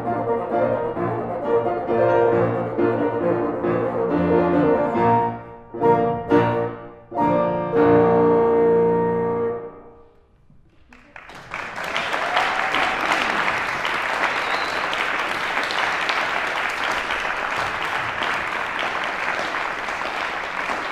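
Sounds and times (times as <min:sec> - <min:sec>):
audience applauding: 0:10.6 - 0:20.9.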